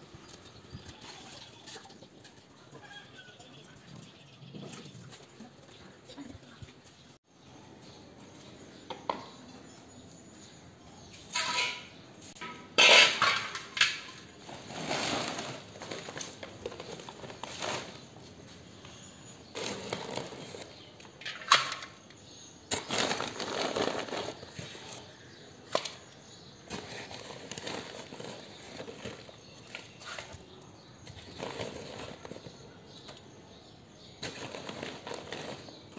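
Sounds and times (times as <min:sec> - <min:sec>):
trowel scraping in metal pan: 0:11.3 - 0:15.7.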